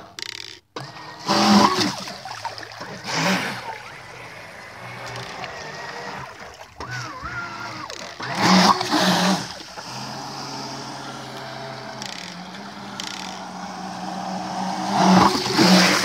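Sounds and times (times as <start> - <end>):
jet boat humming across water: 0.0 - 16.0.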